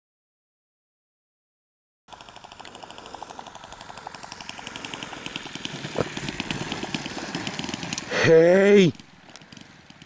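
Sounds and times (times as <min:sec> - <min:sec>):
model plane engine pulsing: 0:02.1 - 0:10.0.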